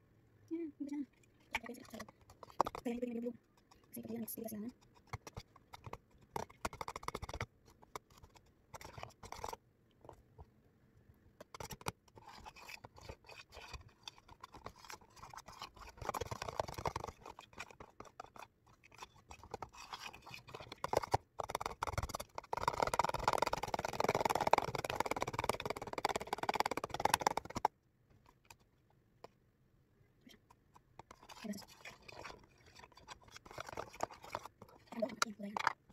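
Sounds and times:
spatula scraping plastic tub: 1.6 - 9.6, 30.5 - 35.9.

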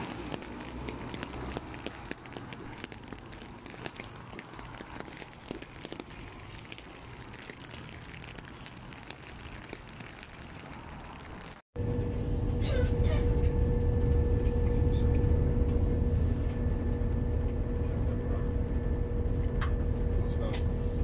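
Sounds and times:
rain ticking on umbrella: 0.0 - 11.7.

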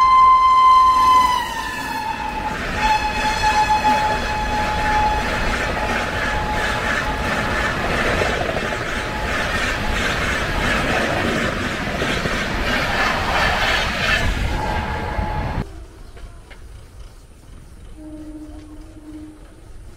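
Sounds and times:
locomotive horn: 0.0 - 7.7, 14.4 - 15.6, 18.0 - 19.8
passenger train rushing past: 0.0 - 19.9.

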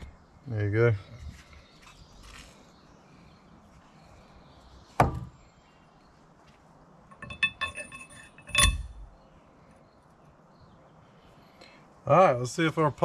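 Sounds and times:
metal parts knocking and clinking: 7.1 - 9.0.

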